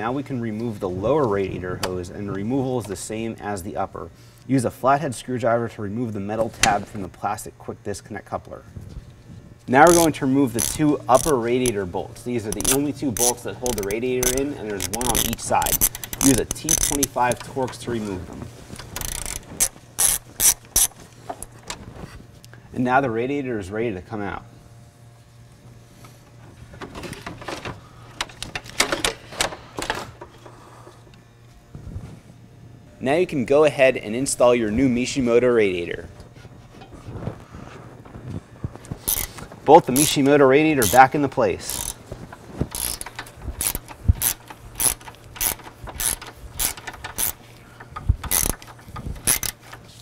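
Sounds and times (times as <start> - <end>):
radiator parts clacking and scraping: 9.7 - 22.4, 26.0 - 31.2, 36.1 - 50.0
hand ratchet clicking: 9.8 - 18.0, 18.8 - 21.6, 39.0 - 50.0.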